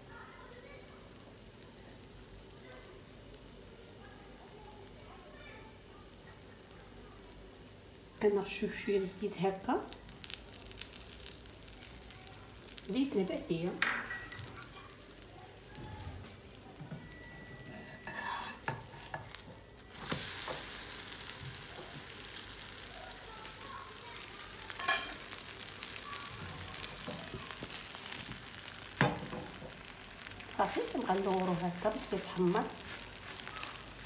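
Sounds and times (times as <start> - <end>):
bread sizzling in oil: 0.0 - 34.0
spatula scraping pan: 17.5 - 20.8.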